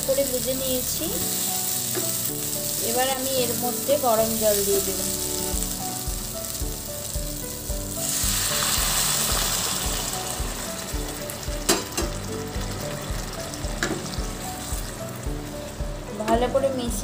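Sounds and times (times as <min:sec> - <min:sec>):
water sizzling in hot oil: 0:00.0 - 0:16.3.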